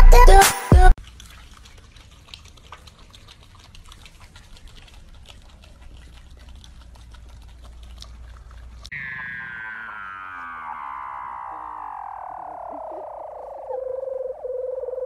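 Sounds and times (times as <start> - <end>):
opossum chewing and smacking: 1.0 - 8.9
low steady hum: 4.7 - 15.0.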